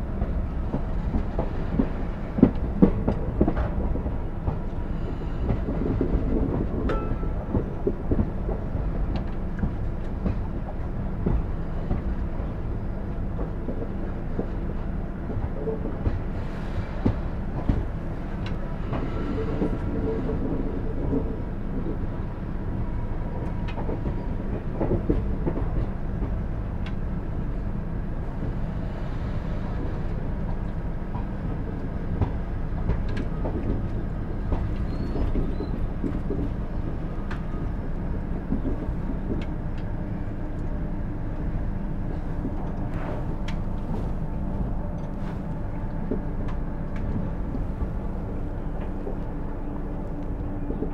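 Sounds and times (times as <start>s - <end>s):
rail joint clicks and knocks: 0.0s - 50.9s
train wheels rumbling on rails: 0.0s - 50.9s.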